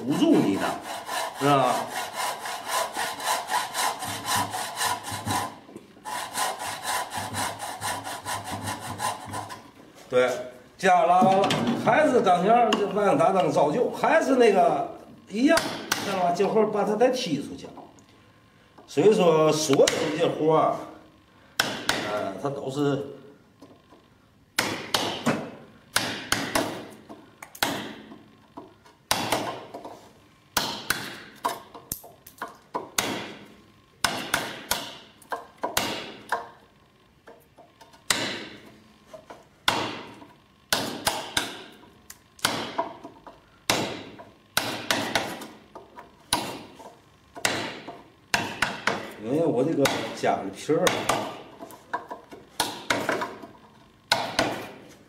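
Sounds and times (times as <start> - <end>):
chisel struck into wood: 15.6 - 16.2, 21.6 - 22.2, 24.6 - 26.9, 27.6 - 28.1, 29.1 - 29.8, 30.6 - 31.6, 32.7 - 33.4, 34.0 - 36.6, 38.1 - 38.6, 39.6 - 41.8, 42.4 - 43.1, 43.7 - 45.6, 46.3 - 46.8, 47.4 - 49.1, 49.8 - 50.2, 50.8 - 53.4, 54.1 - 54.8.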